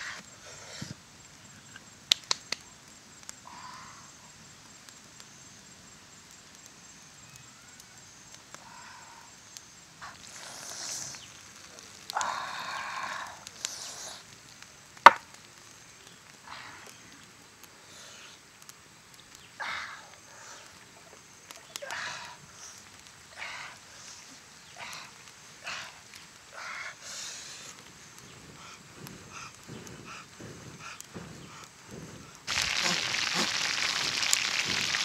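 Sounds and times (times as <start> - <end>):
stone and wood knocks: 15.1 - 15.3
water splashing on stone slab: 32.5 - 35.0.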